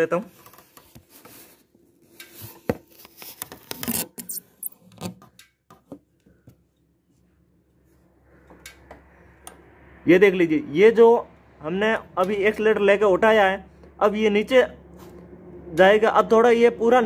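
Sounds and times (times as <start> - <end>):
throttle linkage clicks and scrapes: 2.1 - 5.5.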